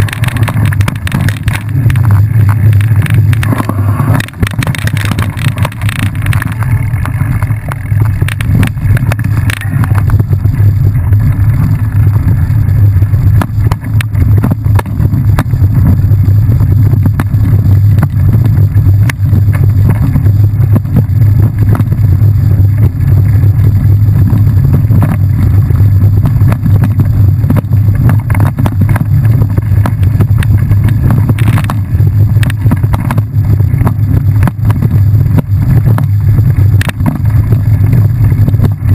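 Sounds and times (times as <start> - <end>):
knocks and rattles: 0.0 - 11.8
bike rumbling on dirt trail: 0.0 - 38.9.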